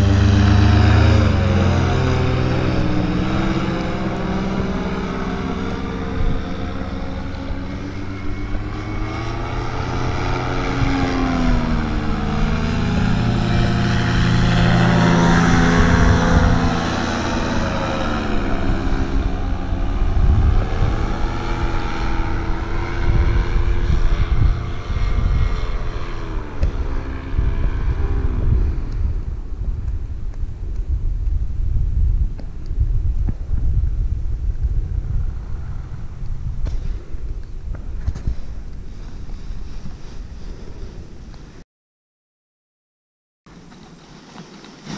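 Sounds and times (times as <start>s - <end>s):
paramotor engine droning: 0.0s - 39.8s
rough low rumble: 0.0s - 41.6s.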